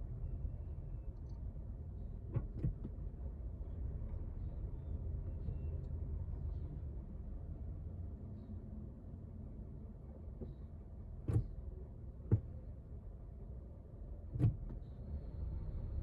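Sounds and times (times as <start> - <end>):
car engine rumble from inside cabin: 0.0 - 16.0.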